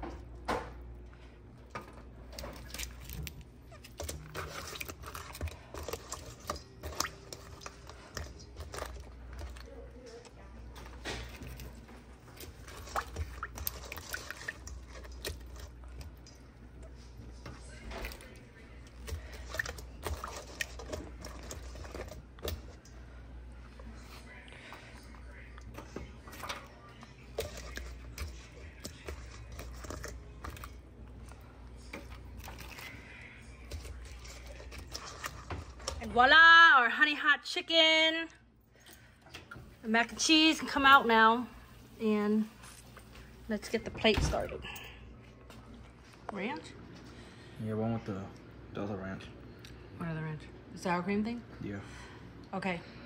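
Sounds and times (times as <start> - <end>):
low steady hum: 0.0 - 53.0
wet squishing and dripping: 2.2 - 23.0.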